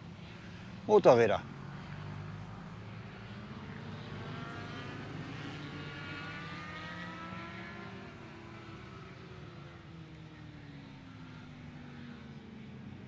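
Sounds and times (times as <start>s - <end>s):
distant motorcycle engines droning: 0.0s - 13.0s
motorcycle engine changing pitch: 3.0s - 10.7s.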